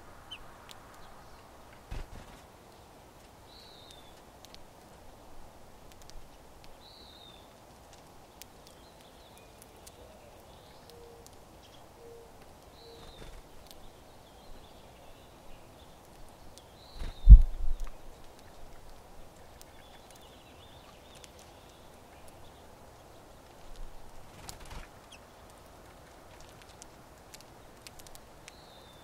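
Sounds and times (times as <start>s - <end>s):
finches chirping: 8.6s - 16.0s.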